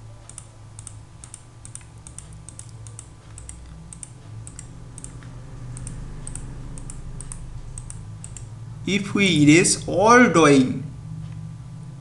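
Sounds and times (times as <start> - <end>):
low steady hum: 0.0 - 12.0
computer mouse clicking: 0.2 - 8.5.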